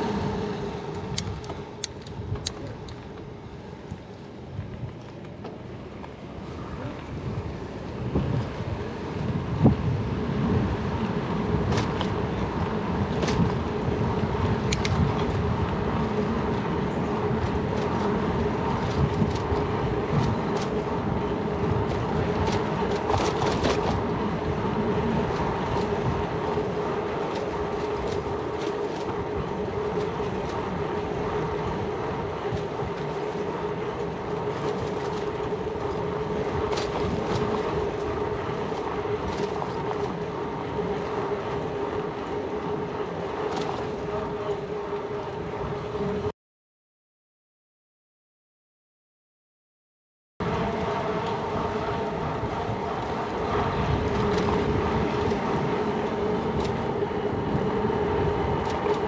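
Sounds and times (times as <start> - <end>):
bicycle riding hum: 0.0 - 46.3, 50.4 - 59.0
bicycle clicks and rattles: 1.0 - 5.6, 11.6 - 44.1, 51.1 - 59.0.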